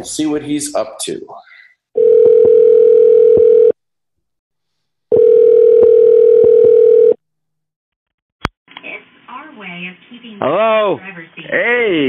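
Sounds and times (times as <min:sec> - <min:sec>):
telephone ringback tone: 0:02.0 - 0:03.8, 0:05.1 - 0:07.2.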